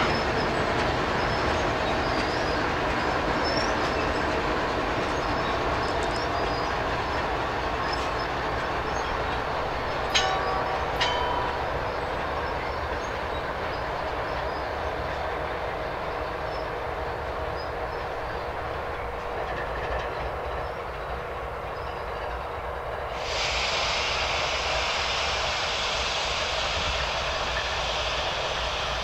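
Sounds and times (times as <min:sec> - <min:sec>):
train rumbling on rails: 0:00.0 - 0:29.0
steady hiss: 0:23.0 - 0:29.0.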